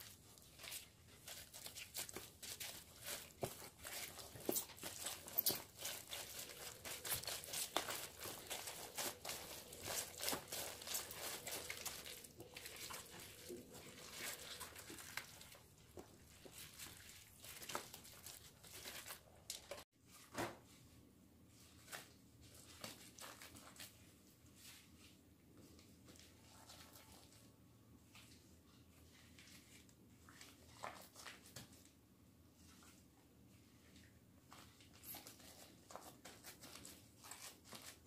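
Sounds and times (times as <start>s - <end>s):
cabbage leaves crinkling: 0.0s - 15.6s
wet squishing of paste: 0.0s - 19.8s, 26.2s - 31.9s.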